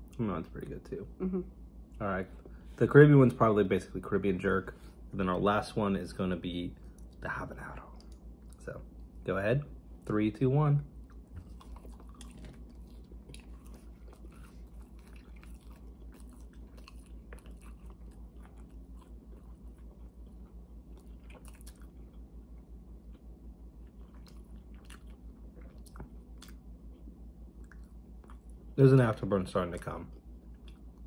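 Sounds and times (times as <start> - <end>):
low hum: 0.0 - 31.0
people chewing crunchy food: 10.9 - 31.0.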